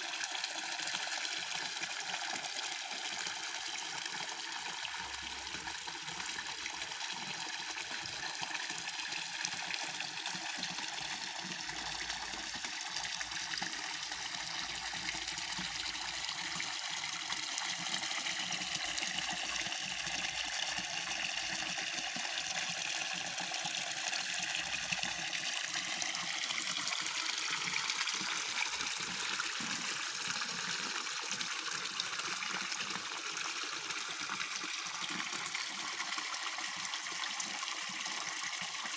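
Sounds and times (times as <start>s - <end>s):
waterfall trickling into pond: 0.0s - 38.9s.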